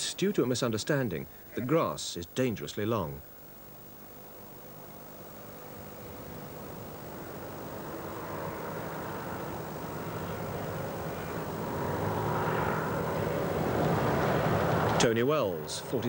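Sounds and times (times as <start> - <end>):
aircraft engine and propeller droning: 4.5 - 16.0.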